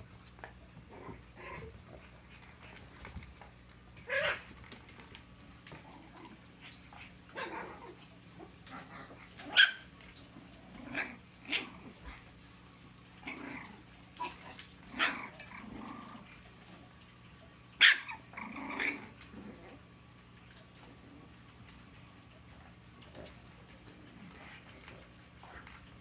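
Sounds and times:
puppies barking and growling: 0:00.0 - 0:26.0
puppy yelps: 0:17.8 - 0:18.2.

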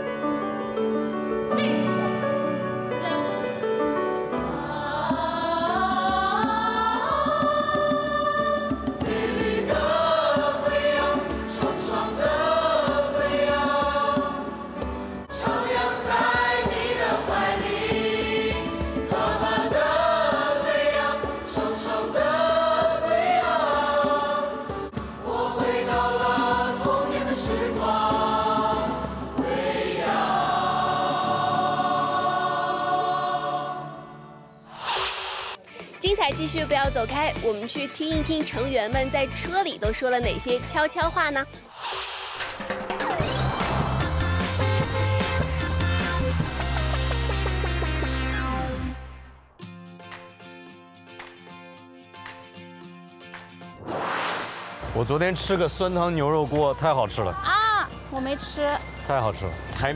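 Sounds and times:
song with sung vocals: 0:04.4 - 0:35.9.

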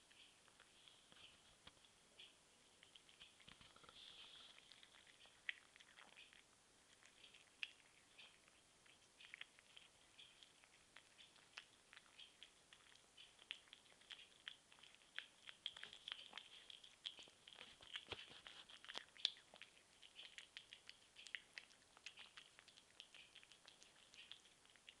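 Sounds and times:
cat chewing and smacking: 0:00.0 - 0:25.0.

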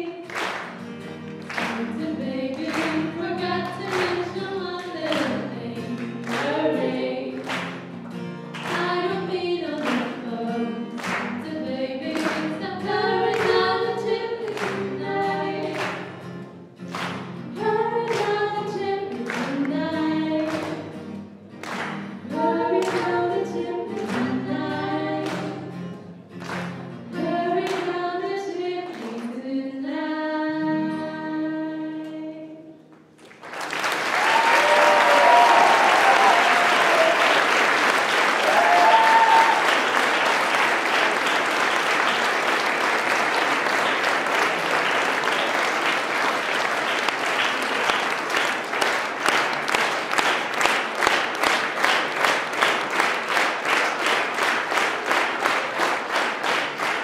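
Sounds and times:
strummed acoustic guitar: 0:00.5 - 0:27.9
women singing into microphones: 0:01.7 - 0:07.4, 0:08.7 - 0:15.8, 0:17.6 - 0:20.8, 0:22.3 - 0:25.6, 0:27.2 - 0:32.7.

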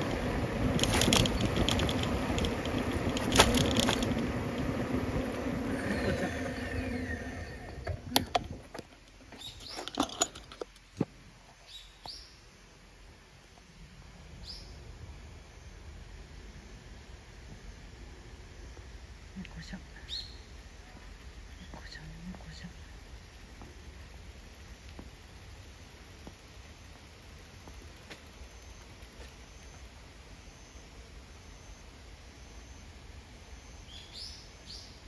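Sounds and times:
vehicle rattling over bumps: 0:00.0 - 0:11.2
small vehicle riding on road: 0:00.0 - 0:11.4, 0:14.2 - 0:35.0.

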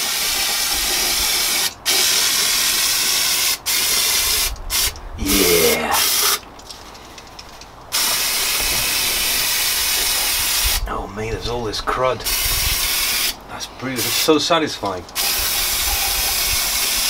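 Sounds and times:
compressed air blasting: 0:00.0 - 0:05.0, 0:06.0 - 0:06.4, 0:07.9 - 0:10.8, 0:12.2 - 0:13.4, 0:15.2 - 0:17.0.

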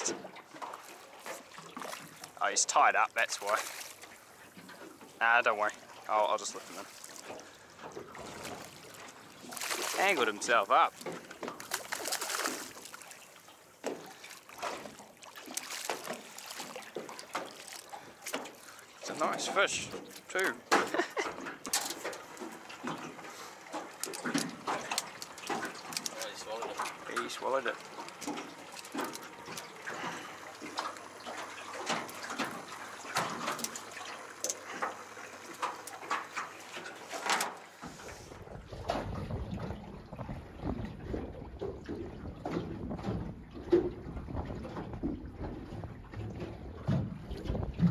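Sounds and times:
water splashing against boat: 0:00.0 - 0:47.9
fish thrashing at surface: 0:08.1 - 0:10.3, 0:11.0 - 0:13.3
fish slapping on wet deck: 0:08.2 - 0:10.3, 0:11.0 - 0:13.3, 0:13.9 - 0:18.7, 0:23.8 - 0:26.9.

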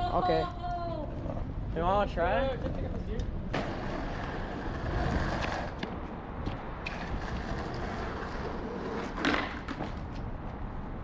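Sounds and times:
skateboard clatter: 0:02.6 - 0:06.0, 0:06.8 - 0:10.2
skateboard clacking on concrete: 0:02.6 - 0:06.1, 0:06.8 - 0:10.2.

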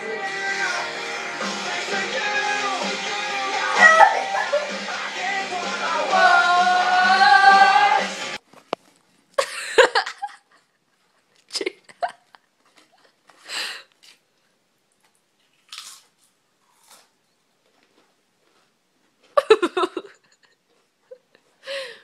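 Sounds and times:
music with singing voice: 0:00.0 - 0:08.4
crunching of chips being chewed: 0:15.0 - 0:19.4.

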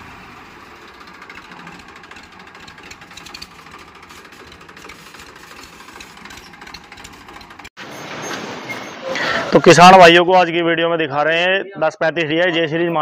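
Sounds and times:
tractor diesel engine clattering: 0:00.0 - 0:09.0.

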